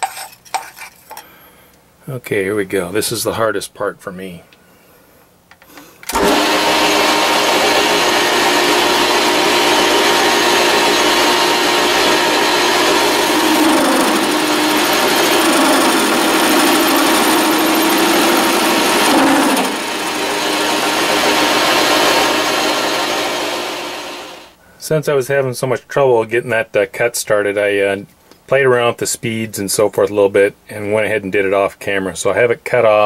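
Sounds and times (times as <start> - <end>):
metal lathe whining: 6.1 - 24.5
wavering cutting tone: 13.0 - 20.7.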